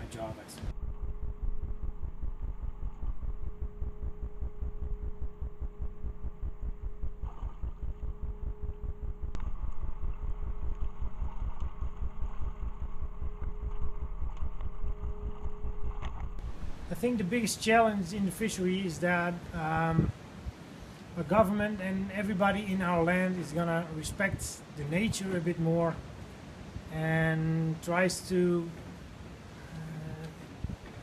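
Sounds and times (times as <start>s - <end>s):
boat engine idling: 0.8s - 17.1s.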